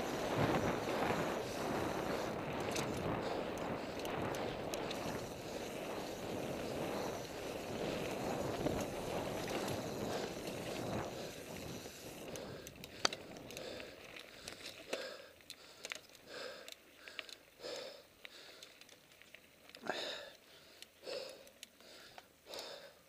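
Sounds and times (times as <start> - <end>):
heavy breathing: 0.0 - 8.5, 9.3 - 19.0, 19.8 - 23.0
wind rushing over microphone: 0.0 - 13.8
bike clicks and rattles: 0.0 - 23.0.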